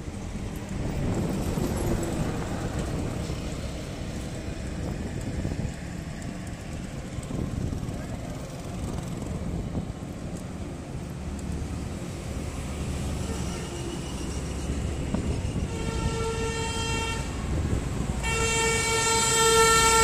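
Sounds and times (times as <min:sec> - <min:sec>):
road noise: 0:00.0 - 0:20.0
vehicle rumble: 0:00.0 - 0:20.0
wind on microphone: 0:00.4 - 0:10.4, 0:14.3 - 0:18.2.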